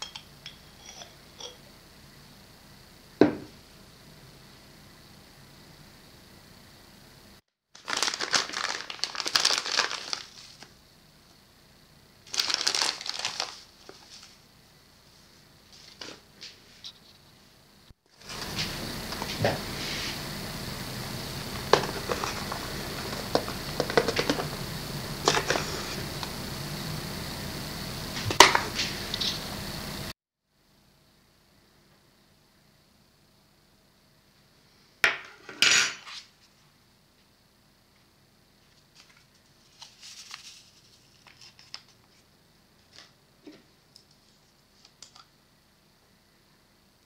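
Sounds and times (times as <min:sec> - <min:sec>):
faint hum with high whine: 0:00.0 - 0:47.0
paper sachet crinkling: 0:07.8 - 0:10.7, 0:12.2 - 0:14.4, 0:39.0 - 0:42.2.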